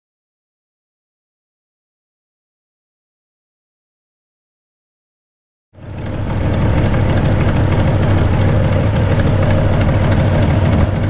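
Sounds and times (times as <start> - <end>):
car engine idling: 5.8 - 11.0.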